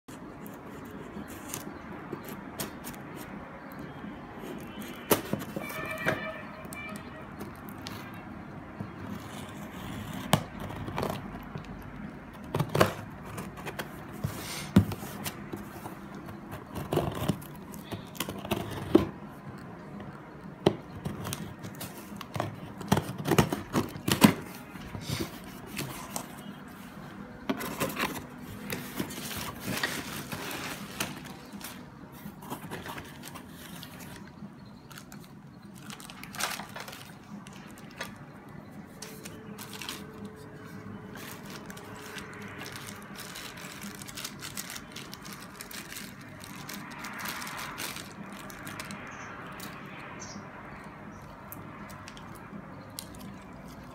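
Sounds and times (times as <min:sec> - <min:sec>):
cardboard scraping and tearing: 0:12.5 - 0:19.2, 0:21.0 - 0:34.2.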